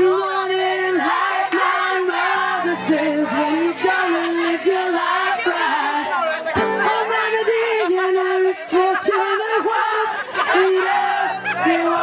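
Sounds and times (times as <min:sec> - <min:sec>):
music with singing: 0:00.0 - 0:12.0.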